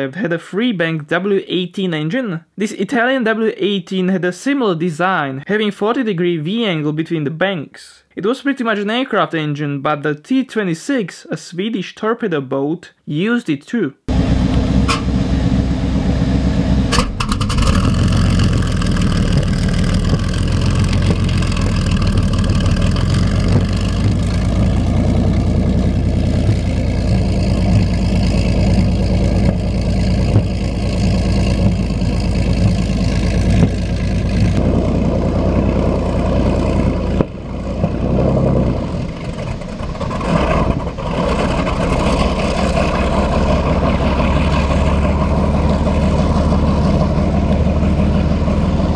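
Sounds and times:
boat engines running loud: 14.1s - 48.9s.

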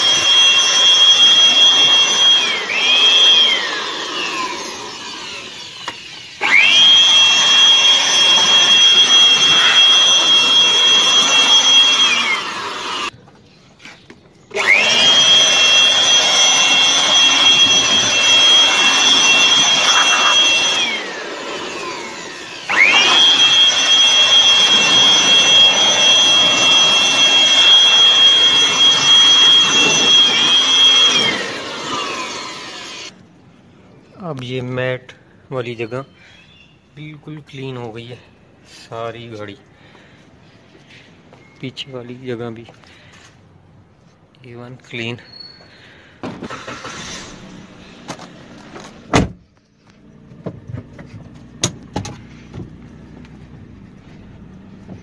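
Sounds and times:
handheld vacuum motor whining: 0.0s - 13.2s, 14.5s - 33.2s, 46.4s - 50.1s.

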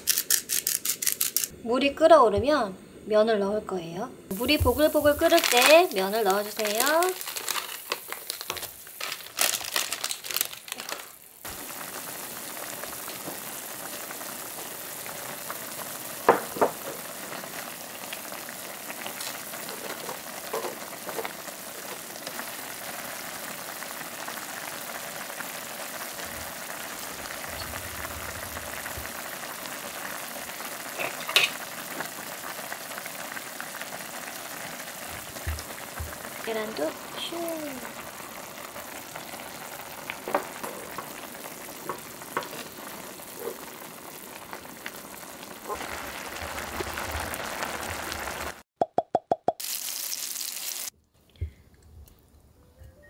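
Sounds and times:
crackly rustling: 4.3s - 15.7s
broth boiling and bubbling: 4.3s - 50.9s.

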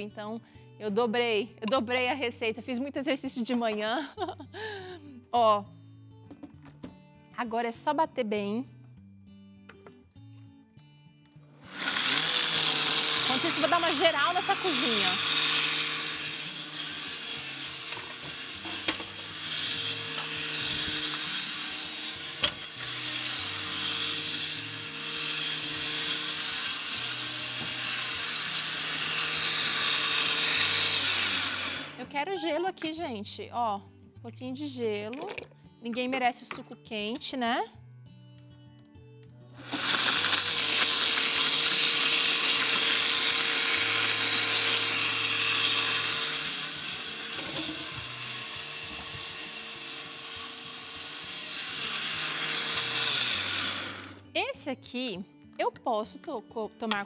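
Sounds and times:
blender motor running: 11.6s - 32.1s, 39.6s - 54.3s.

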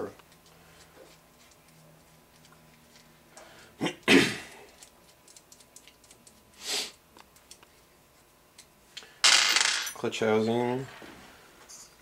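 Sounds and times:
metal parts clicking and tapping: 4.7s - 6.4s.

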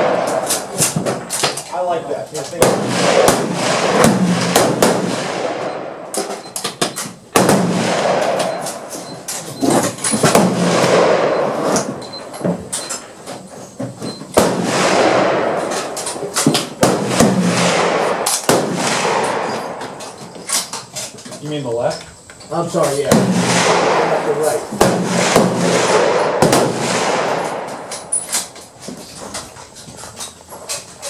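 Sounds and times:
rifle shots with echo: 0.0s - 1.5s, 2.5s - 6.4s, 7.3s - 9.1s, 10.2s - 12.0s, 14.4s - 20.2s, 23.1s - 28.6s.

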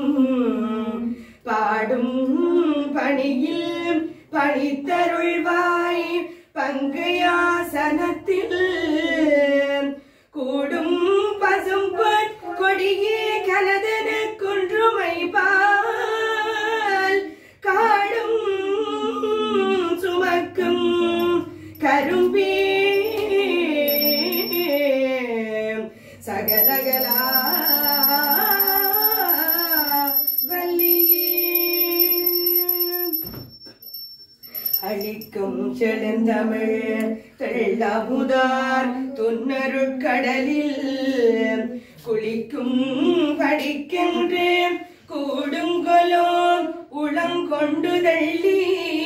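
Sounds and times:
woman singing hymn unaccompanied: 0.0s - 33.2s, 34.8s - 49.0s
small hand bell ringing: 21.2s - 25.2s, 26.5s - 35.4s.

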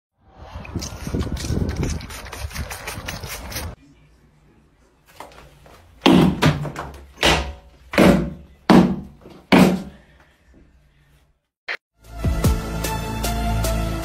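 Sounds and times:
loud thuds: 6.0s - 10.0s.

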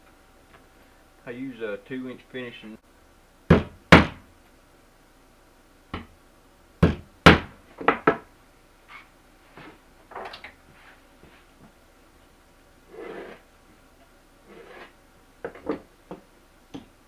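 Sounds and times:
hammer striking nails: 3.5s - 4.2s, 6.8s - 8.2s.

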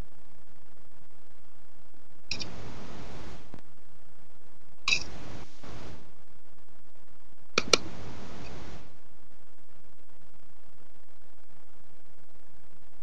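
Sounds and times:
sharp click: 2.3s - 2.6s, 4.9s - 5.2s, 7.6s - 8.6s.

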